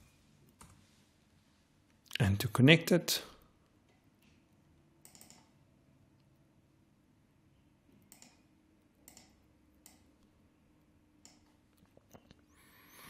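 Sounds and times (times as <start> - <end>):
faint low room hum: 0.0 - 13.0
soft computer mouse clicks: 5.0 - 5.6, 8.0 - 10.3, 11.2 - 12.4.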